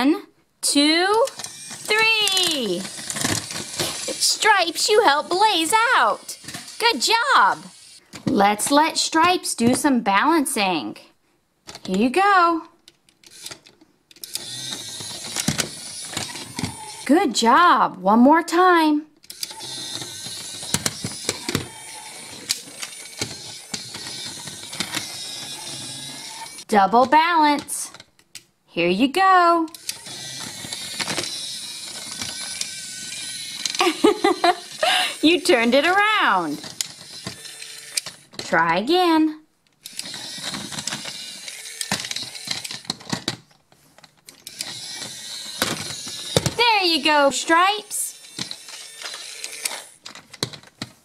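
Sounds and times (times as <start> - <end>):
toy truck motor whirring: 0.8 - 9.1, 13.2 - 17.1, 19.2 - 26.7, 29.7 - 38.5, 39.8 - 43.4, 44.3 - 50.9
plastic wheels clicking on ramps: 1.1 - 8.0, 13.2 - 17.1, 19.3 - 26.7, 29.7 - 38.6, 39.8 - 51.0
plastic clicks and clatters: 39.7 - 46.6, 48.2 - 51.0.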